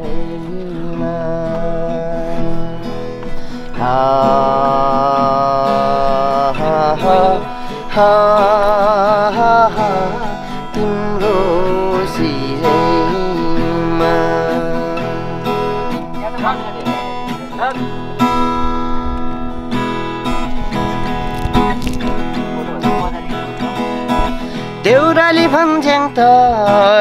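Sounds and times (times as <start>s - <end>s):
person singing slow melody: 0.0s - 16.0s
acoustic guitar strumming: 0.0s - 27.0s.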